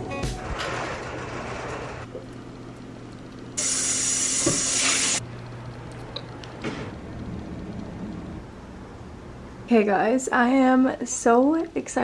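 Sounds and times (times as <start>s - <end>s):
low steady hum: 5.2s - 12.0s.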